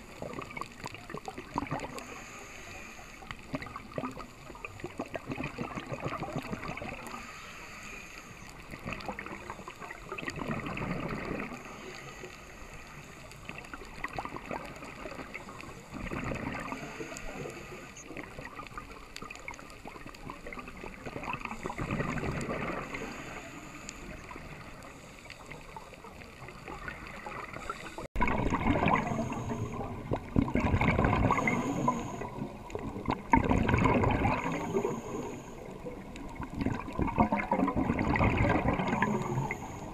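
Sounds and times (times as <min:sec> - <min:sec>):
bubbling gush: 0:00.0 - 0:02.9, 0:03.5 - 0:07.3, 0:08.4 - 0:12.2, 0:13.3 - 0:17.6, 0:18.2 - 0:39.9
diver breathing through regulator: 0:01.8 - 0:03.5, 0:07.0 - 0:08.5, 0:16.5 - 0:18.0, 0:21.5 - 0:25.6, 0:27.4 - 0:28.1, 0:28.8 - 0:30.2, 0:31.0 - 0:32.6, 0:34.1 - 0:36.0, 0:38.7 - 0:39.9.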